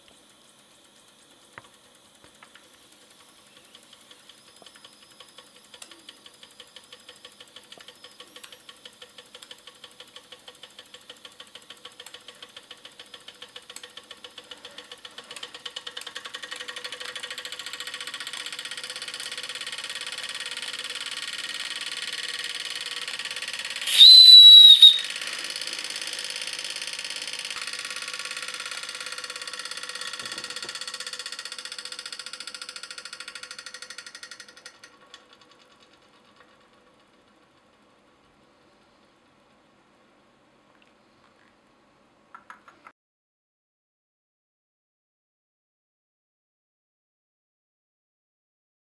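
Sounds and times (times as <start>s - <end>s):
toy steam engine puffing: 23.5s - 31.7s
shrill steam whistle: 23.8s - 25.2s.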